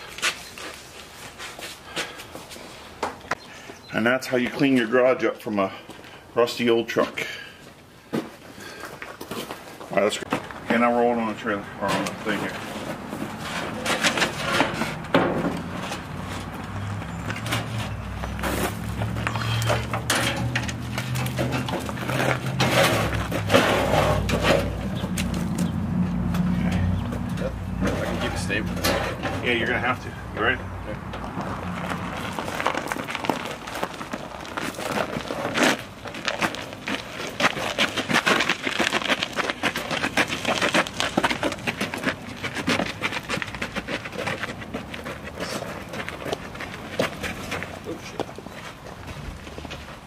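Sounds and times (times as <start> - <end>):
crunching over gravel: 8.1 - 27.0, 31.1 - 50.0
metal clanking on wheelbarrow: 11.8 - 16.4, 17.2 - 25.7, 26.6 - 29.9.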